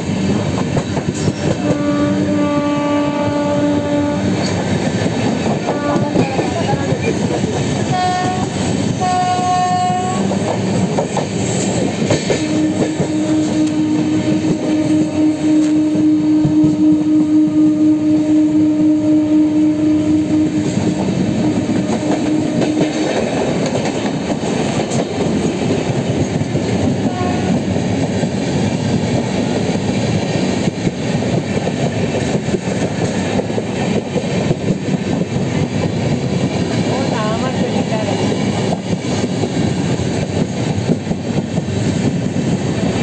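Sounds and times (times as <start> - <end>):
train wheels clacking over rail joints: 0.0 - 2.7, 4.2 - 15.2, 20.7 - 43.0
train horn: 1.2 - 4.6, 5.4 - 7.2, 7.8 - 10.5, 12.2 - 23.4, 26.8 - 27.8.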